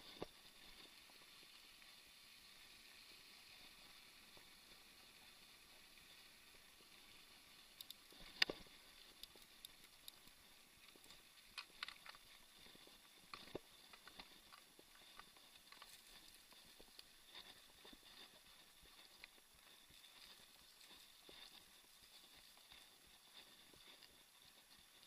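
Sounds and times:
low steady hiss: 0:00.0 - 0:25.0
bike clicks and knocks over bumps: 0:07.8 - 0:16.3.

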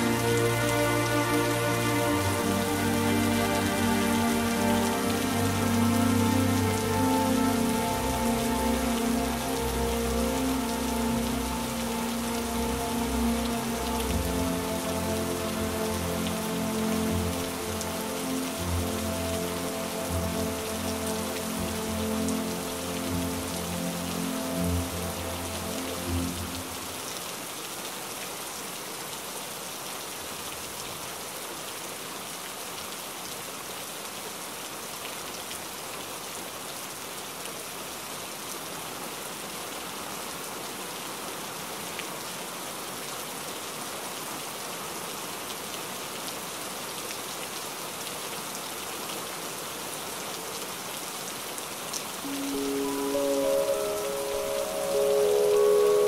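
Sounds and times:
soft low background music: 0:00.0 - 0:27.2, 0:52.2 - 0:56.0
heavy rain: 0:00.0 - 0:56.0.

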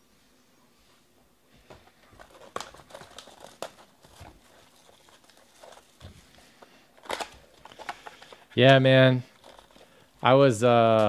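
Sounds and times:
plastic shrink wrap crinkling: 0:01.7 - 0:11.0.

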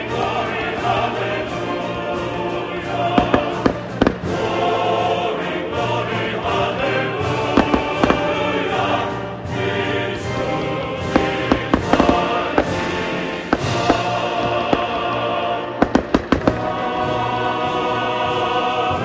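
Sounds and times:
music with singing: 0:00.0 - 0:19.0
fireworks bangs: 0:03.1 - 0:04.6, 0:07.5 - 0:08.7, 0:11.1 - 0:16.9.

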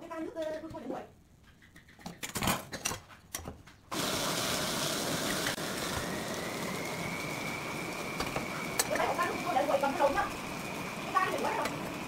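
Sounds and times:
whirring machine with whine: 0:05.7 - 0:12.0.

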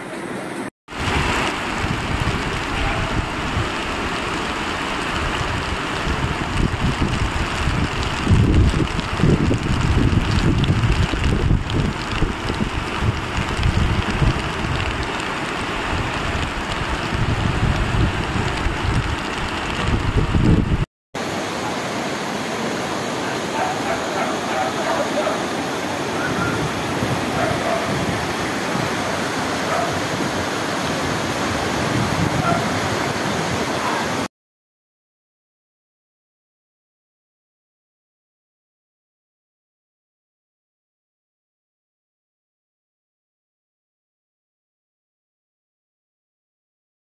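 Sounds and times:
floodwater rushing: 0:00.0 - 0:34.3
faint dog barks: 0:02.8 - 0:03.2, 0:23.2 - 0:26.7, 0:27.3 - 0:28.1, 0:29.7 - 0:30.0, 0:32.4 - 0:32.8.

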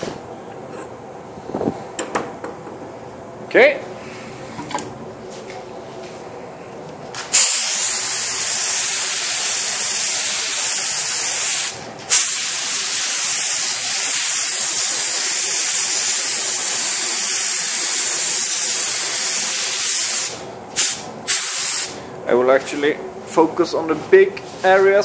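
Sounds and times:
spray gun hissing: 0:07.3 - 0:22.0.

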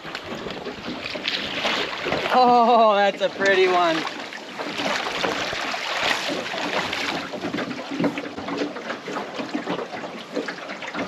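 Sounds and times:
river water rushing: 0:00.0 - 0:07.5
small water splashes: 0:00.0 - 0:11.0.

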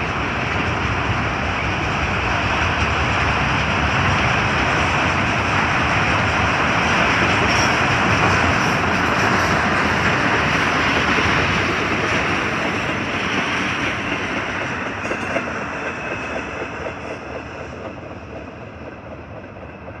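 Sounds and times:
freight train wheels rumbling on rails: 0:00.0 - 0:20.0.

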